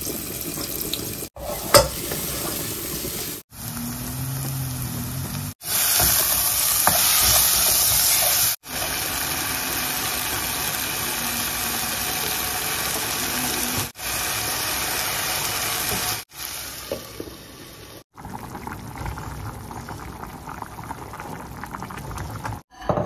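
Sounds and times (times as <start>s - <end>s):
vegetables sizzling in a pot: 0.0s - 22.6s
lid placed on pot: 1.4s - 2.3s
covered pot crackling and bubbling: 16.9s - 22.7s.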